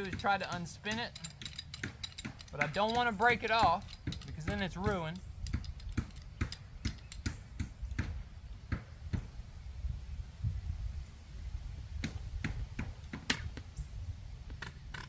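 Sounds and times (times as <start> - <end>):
hand tool clicks and knocks: 0.0 - 8.1
low steady rumble: 0.0 - 15.0.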